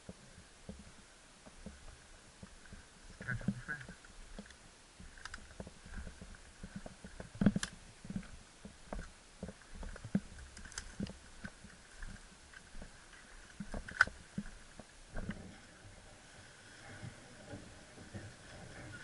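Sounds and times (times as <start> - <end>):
knocks and rustles: 1.5 - 15.7.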